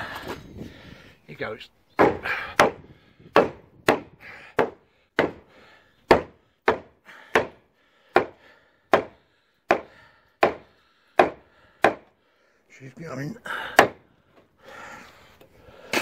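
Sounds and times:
hammer striking concrete: 0:03.4 - 0:05.4, 0:06.1 - 0:08.4, 0:09.0 - 0:12.1, 0:13.8 - 0:14.0.

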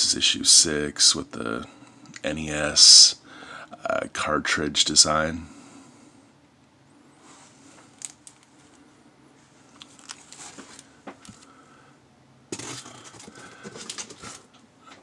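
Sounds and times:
plastic bags crinkling: 0:09.8 - 0:11.4, 0:12.6 - 0:14.5.

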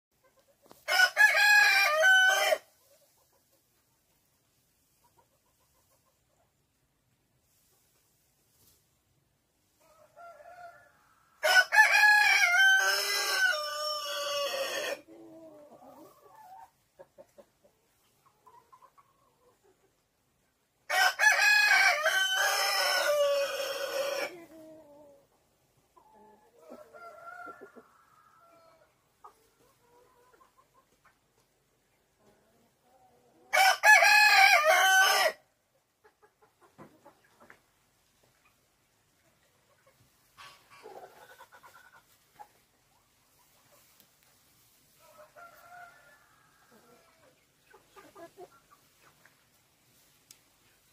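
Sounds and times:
rooster crowing: 0:00.9 - 0:02.6, 0:10.2 - 0:15.0, 0:20.9 - 0:24.3, 0:33.5 - 0:35.4
hens clucking: 0:02.7 - 0:06.8, 0:13.3 - 0:20.6, 0:22.6 - 0:33.4, 0:35.8 - 0:49.6.

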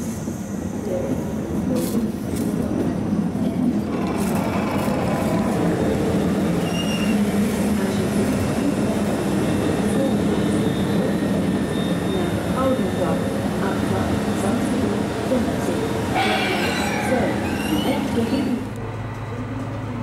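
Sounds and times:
train wheels rumbling on rails: 0:00.0 - 0:20.0
high wheel squeal: 0:06.6 - 0:07.2, 0:16.2 - 0:18.6.

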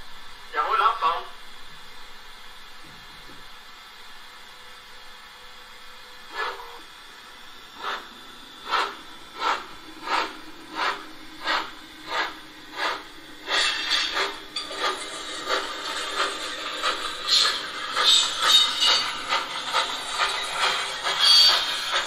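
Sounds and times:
model steam locomotive chuffing: 0:06.2 - 0:22.0.

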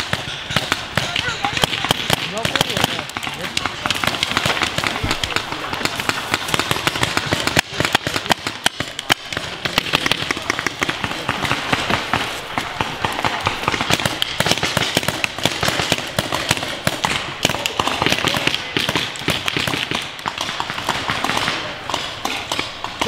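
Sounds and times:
paintball guns firing: 0:00.0 - 0:23.0.

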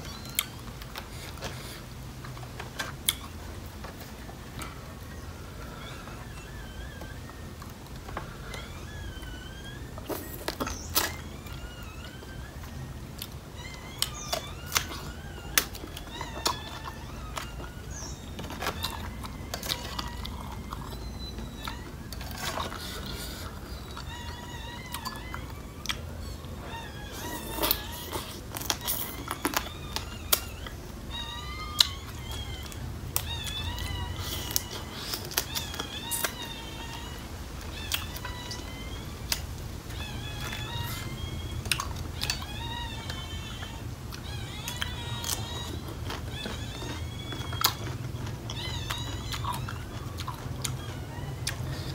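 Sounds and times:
high wavering animal calls: 0:00.0 - 0:51.9
chewing and crunching crab: 0:13.0 - 0:51.9.

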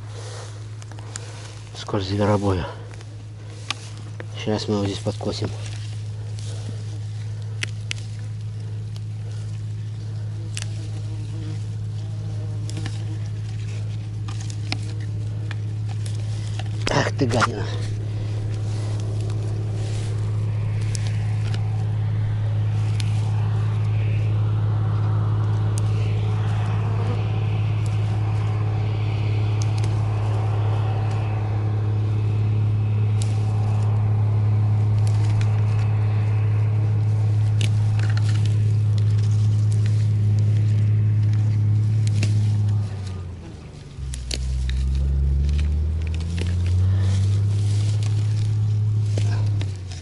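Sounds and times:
motor humming: 0:00.0 - 0:50.0
plant stems snapped by hand: 0:34.9 - 0:43.2, 0:43.8 - 0:50.0.

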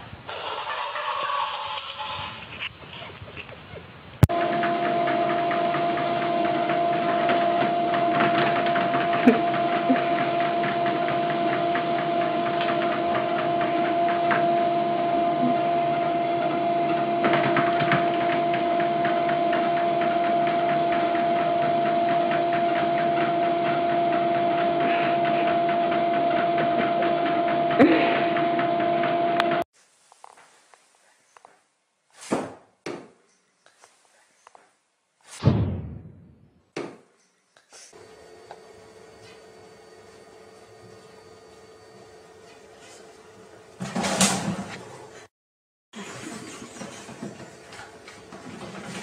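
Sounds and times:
treadmill motor whine: 0:04.2 - 0:29.7, 0:38.0 - 0:45.3, 0:46.0 - 0:49.0.

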